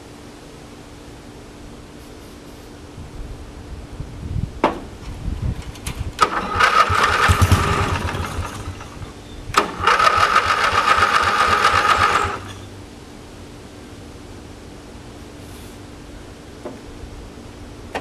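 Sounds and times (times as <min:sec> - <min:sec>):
electric starter cranking engine: 0:05.8 - 0:12.6.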